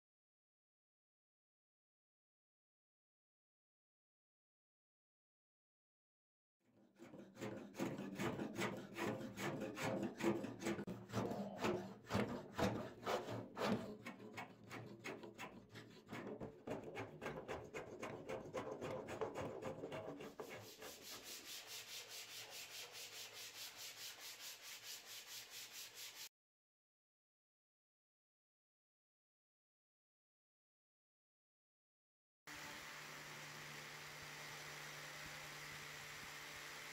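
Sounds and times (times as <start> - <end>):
hand tool scraping wood: 7.0 - 26.3
abrasive strip rubbing wood: 17.0 - 26.3.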